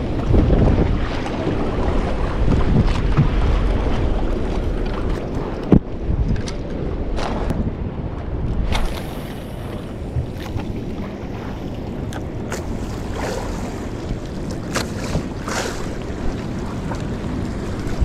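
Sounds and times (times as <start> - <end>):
choppy water lapping at boat: 0.0 - 18.0
wind buffeting microphone: 0.0 - 18.0
sharp water splashes: 12.5 - 17.1.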